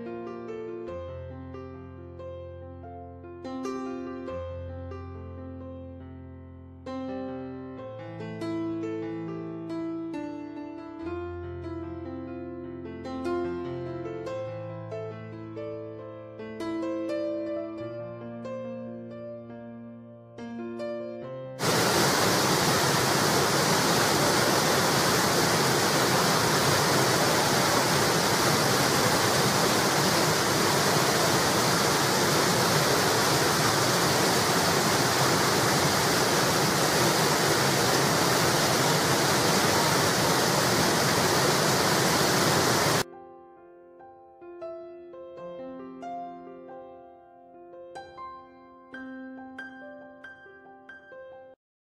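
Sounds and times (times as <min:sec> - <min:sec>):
soft piano music: 0:00.0 - 0:21.9, 0:43.0 - 0:51.6
water rushing over a weir: 0:21.6 - 0:43.0.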